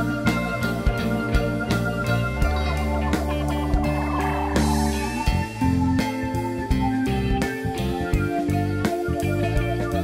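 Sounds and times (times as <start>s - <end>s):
sustained guitar or organ chords: 0.0s - 10.0s.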